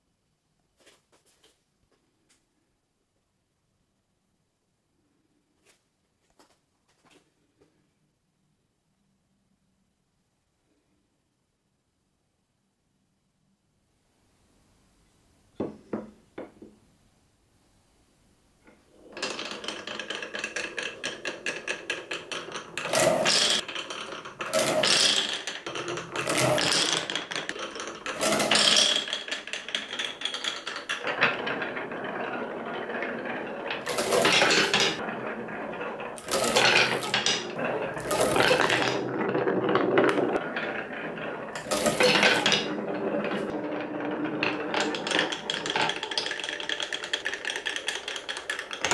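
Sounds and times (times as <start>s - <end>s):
marbles rattling down wooden ramps: 18.9s - 48.9s
wooden knocks: 19.2s - 48.9s.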